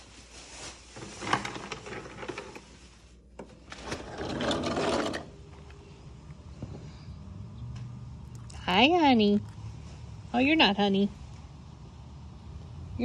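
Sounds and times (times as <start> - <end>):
sliding door rumbling on track: 3.7 - 5.4.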